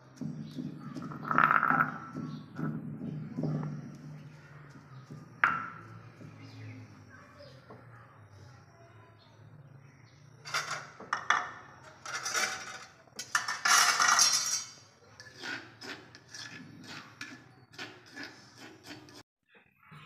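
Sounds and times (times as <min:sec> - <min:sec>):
metal utensils scraping plates: 0:10.5 - 0:19.2.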